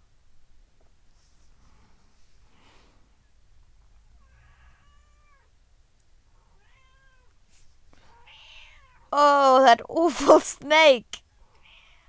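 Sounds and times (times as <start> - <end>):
soft rustle: 0.7 - 4.0, 7.2 - 9.0
cat meowing: 4.2 - 5.5, 6.6 - 7.3.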